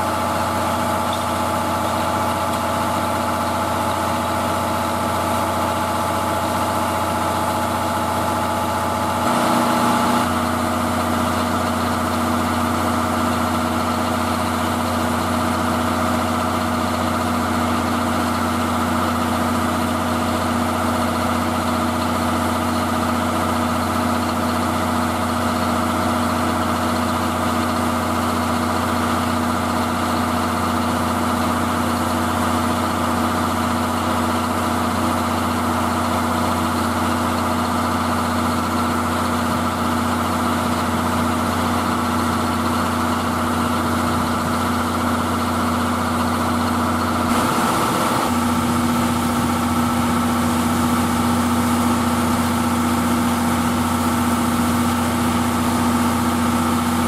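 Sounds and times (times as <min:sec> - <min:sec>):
short loud steam hiss: 0:47.3 - 0:50.4
steam locomotive hum and hiss: 0:47.3 - 0:56.0.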